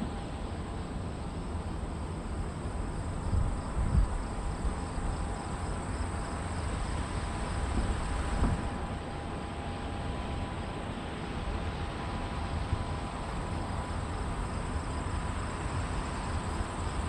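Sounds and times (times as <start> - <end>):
wind rumbling on microphone: 3.2 - 5.2.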